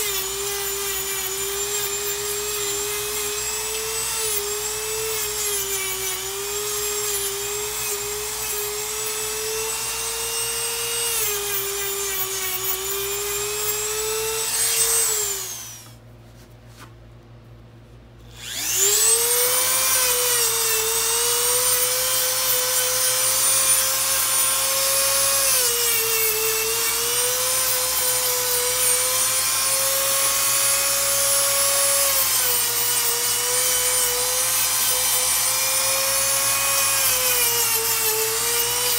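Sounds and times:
nail grinder motor whine: 0:00.0 - 0:16.0, 0:18.3 - 0:38.9.

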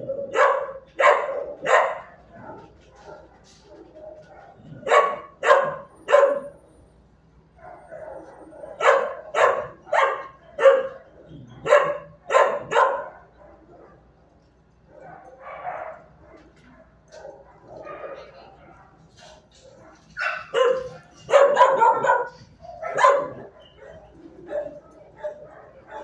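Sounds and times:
dog barking: 0:00.0 - 0:06.7, 0:07.6 - 0:14.0, 0:14.9 - 0:26.0
dog whining: 0:20.4 - 0:25.0.

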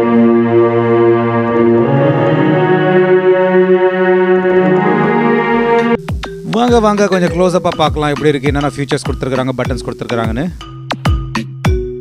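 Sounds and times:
keyboard playing sustained chords: 0:00.0 - 0:08.7.

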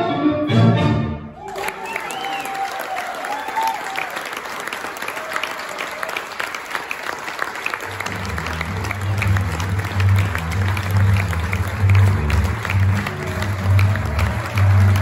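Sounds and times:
audience applauding: 0:01.4 - 0:15.0
low-pitched music: 0:08.1 - 0:15.0.

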